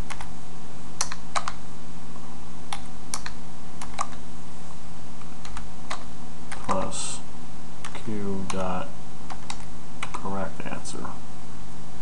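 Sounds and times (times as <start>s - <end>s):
keyboard typing: 0.1s - 0.3s, 1.0s - 1.6s, 2.7s - 4.2s, 5.2s - 7.0s, 7.8s - 8.7s, 9.3s - 10.2s.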